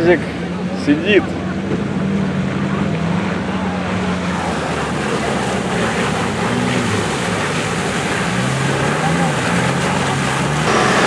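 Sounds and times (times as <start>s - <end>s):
off-road engines revving: 0.0s - 11.0s
steady rushing noise: 10.5s - 11.0s.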